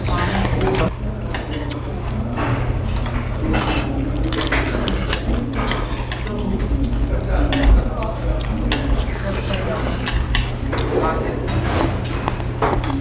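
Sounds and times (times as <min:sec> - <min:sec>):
spoons clinking against bowls: 0:03.0 - 0:06.4.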